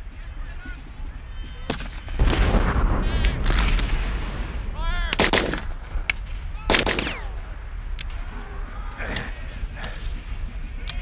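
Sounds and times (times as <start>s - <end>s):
cannon boom: 2.0s - 7.7s
musket shots in volleys: 5.1s - 7.5s.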